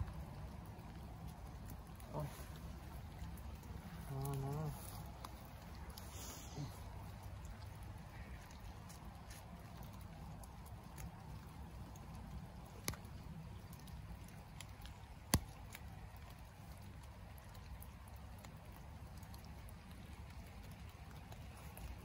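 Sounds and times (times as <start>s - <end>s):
low steady rumble: 0.0s - 15.2s
faint ticks and rustles: 0.0s - 22.0s.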